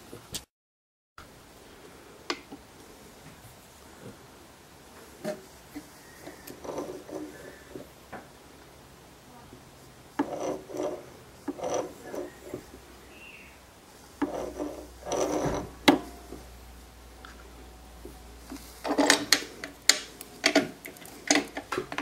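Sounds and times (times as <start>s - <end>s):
wood scraping and rubbing: 4.9s - 8.0s, 10.1s - 13.2s, 13.9s - 16.6s, 17.2s - 22.0s.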